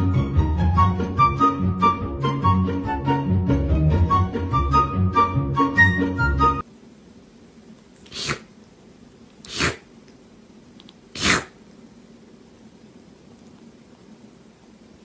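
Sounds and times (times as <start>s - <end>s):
kitten sneezing: 8.0s - 8.5s, 9.4s - 9.9s, 11.1s - 11.6s.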